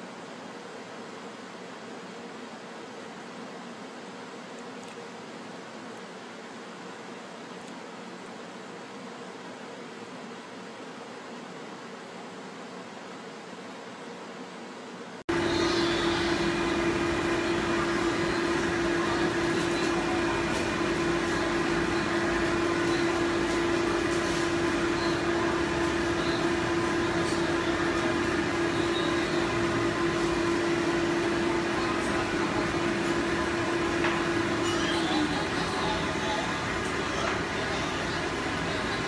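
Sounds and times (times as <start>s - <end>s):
blow dryer motor and rushing air: 15.3s - 39.0s.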